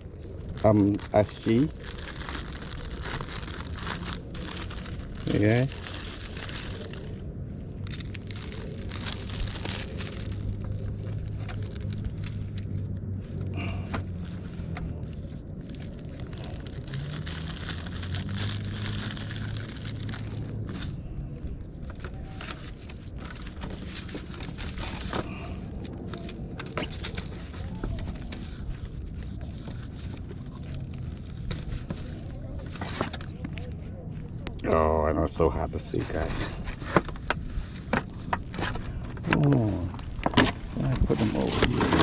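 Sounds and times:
low motor hum: 1.7 - 34.9.

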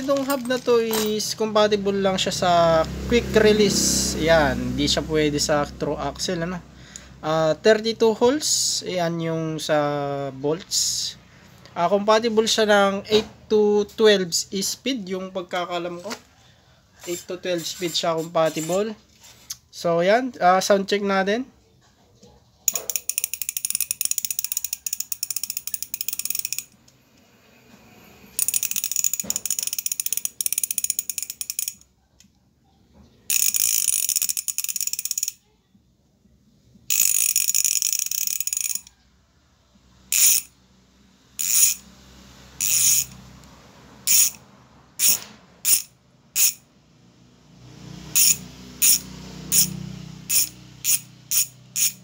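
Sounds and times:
bicycle hub ratcheting buzz: 22.7 - 26.8, 28.3 - 31.8, 33.3 - 35.4, 36.9 - 38.9, 40.1 - 40.6, 41.4 - 43.3, 44.0 - 44.4, 45.0 - 46.7, 48.1 - 52.0.

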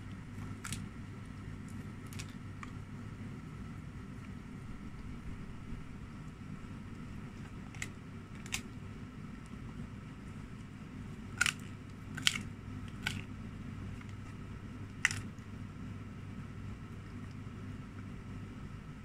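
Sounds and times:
dog chewing crunchy ear: 0.0 - 2.9, 6.8 - 8.8, 10.5 - 15.5
steady low hum: 0.0 - 19.0.

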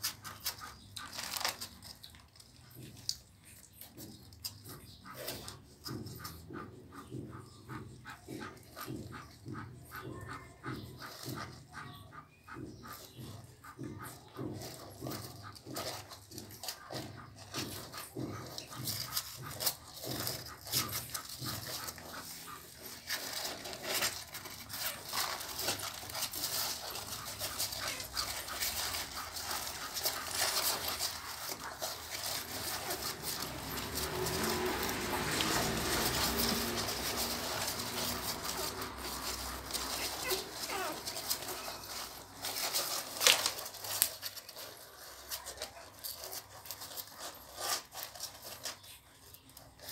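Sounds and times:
puppies suckling: 0.0 - 49.9
puppies whimpering: 0.0 - 49.9
puppy grunts: 36.0 - 42.2.

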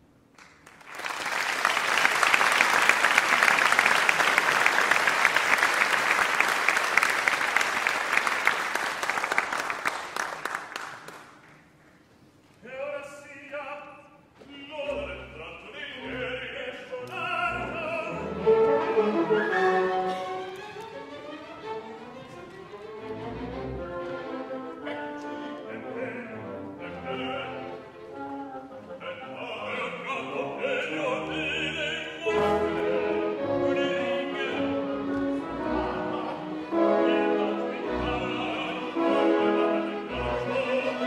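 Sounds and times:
audience applauding: 0.4 - 11.7
man singing opera: 12.6 - 19.9, 24.8 - 41.0
orchestra playing: 14.6 - 41.0.

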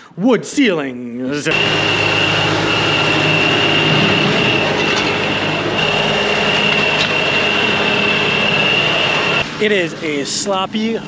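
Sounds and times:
high whine: 1.4 - 10.9
diesel tractor engine: 1.5 - 10.3.

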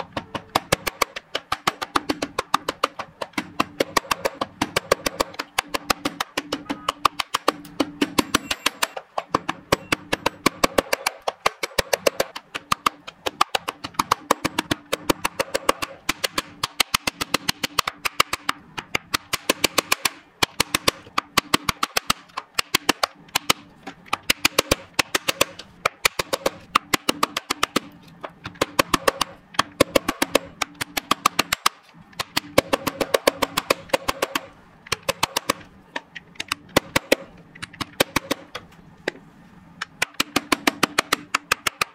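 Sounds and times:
tapping percussion beat: 0.1 - 23.5.

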